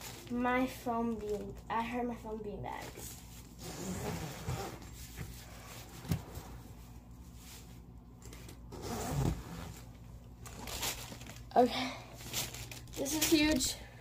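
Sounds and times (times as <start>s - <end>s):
zipper rasping: 3.6s - 5.0s, 8.7s - 9.9s.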